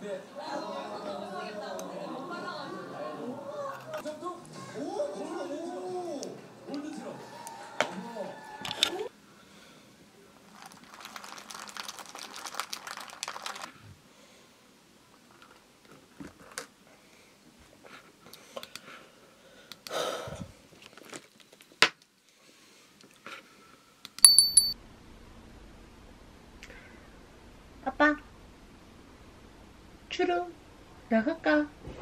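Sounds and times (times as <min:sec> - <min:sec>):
short high chime: 0:24.2 - 0:24.8
straw clinking against glass: 0:24.2 - 0:24.8.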